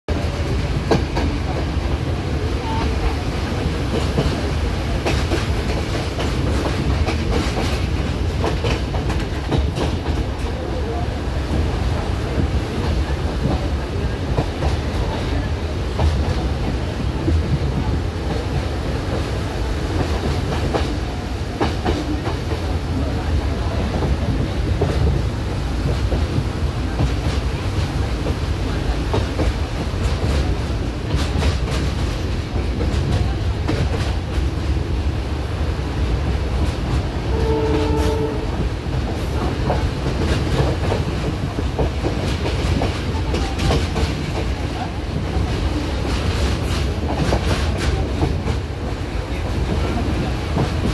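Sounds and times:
train wheels rumbling on rails: 0:00.1 - 0:50.9
train horn: 0:37.2 - 0:38.7.

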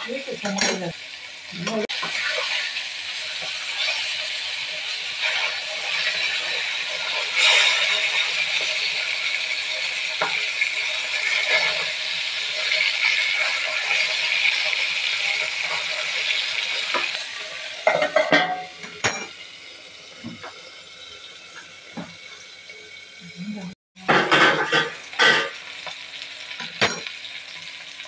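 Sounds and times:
fish sizzling in hot oil: 0:00.0 - 0:28.0
metal plate clanking on pan: 0:00.4 - 0:00.9, 0:17.8 - 0:19.4, 0:24.0 - 0:25.6, 0:26.6 - 0:27.1
metal spatula scraping a pan: 0:01.6 - 0:19.3, 0:24.1 - 0:25.6.

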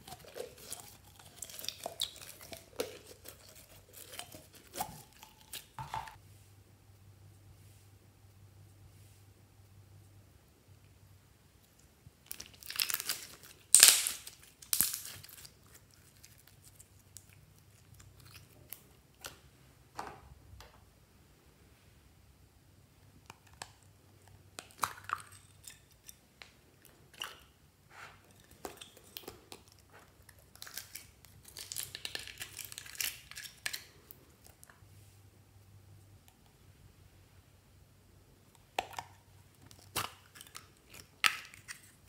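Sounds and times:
slime crackling and squelching: 0:00.0 - 0:06.2, 0:12.2 - 0:19.4.

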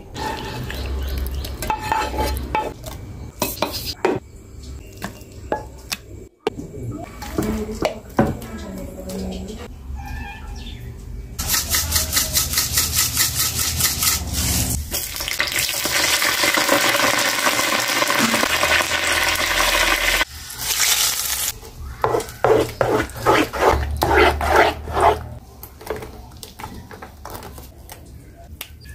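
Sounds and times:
rhythmic stirring strokes: 0:11.4 - 0:14.8, 0:22.1 - 0:25.4
hot oil sizzling: 0:11.4 - 0:21.6.

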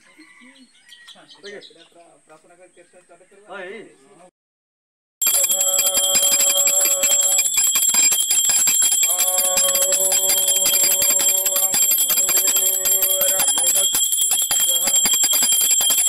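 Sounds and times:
hand cymbals ringing: 0:05.2 - 0:16.0
rapid percussion strikes: 0:05.2 - 0:16.0.

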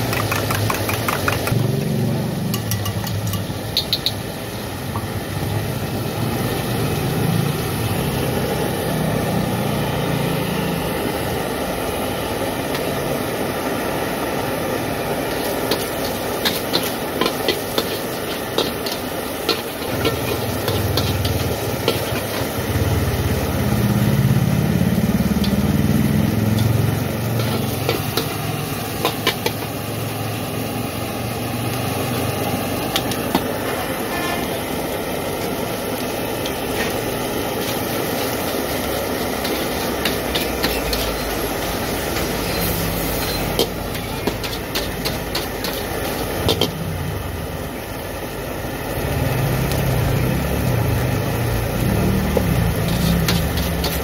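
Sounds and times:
egg and rice sizzling: 0:00.0 - 0:54.0
metal spatula scraping a wok: 0:15.2 - 0:22.7, 0:26.6 - 0:29.7, 0:33.0 - 0:34.7, 0:37.6 - 0:46.8, 0:52.6 - 0:54.0.

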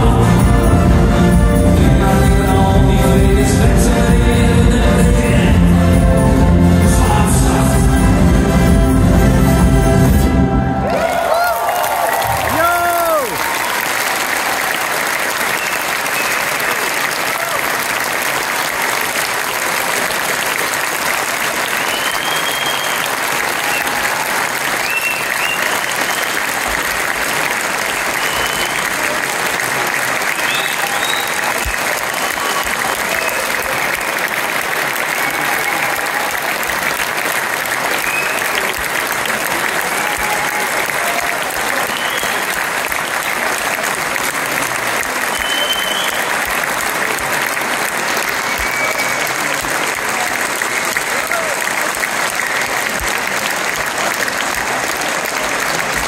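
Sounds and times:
audience applauding: 0:00.0 - 0:56.0
cheering: 0:10.2 - 0:56.0.

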